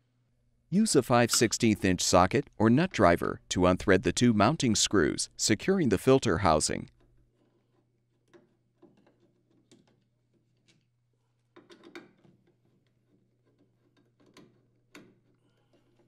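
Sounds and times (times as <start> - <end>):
nut driver clicking and scraping: 11.6 - 16.0.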